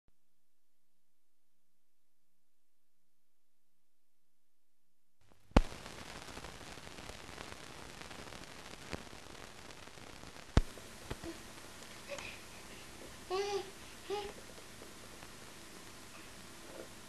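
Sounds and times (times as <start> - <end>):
film soundtrack hiss with crackle: 5.2 - 17.0
loud sharp pops: 5.5 - 11.9.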